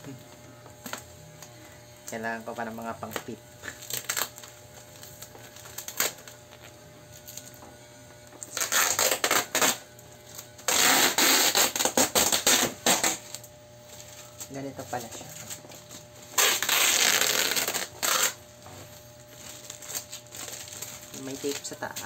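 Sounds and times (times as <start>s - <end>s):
packaging crinkling and rustling: 3.0s - 7.6s, 11.4s - 22.0s.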